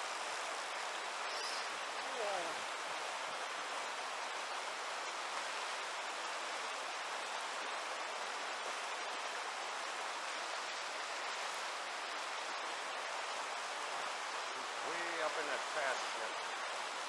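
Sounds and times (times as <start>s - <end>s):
river rapids rushing over rocks: 0.0s - 17.0s.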